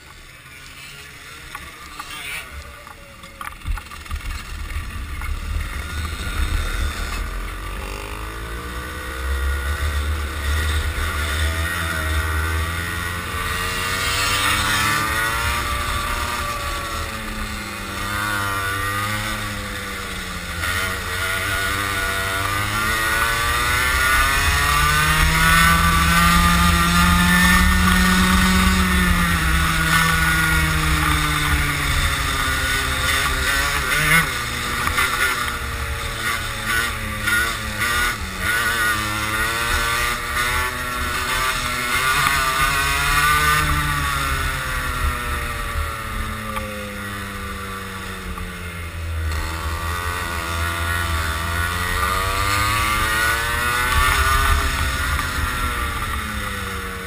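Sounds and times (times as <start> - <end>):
kart engine revving: 0.0 - 57.0.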